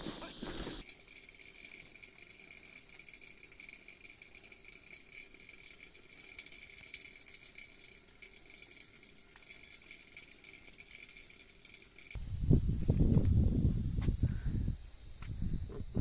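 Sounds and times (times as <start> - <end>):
faint ticks: 0.8 - 12.2
faint high-pitched hum: 2.2 - 16.0.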